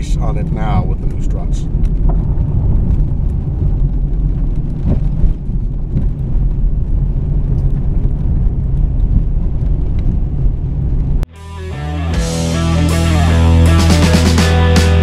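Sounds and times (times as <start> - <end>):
minivan rumbling on rough road: 0.0 - 11.3.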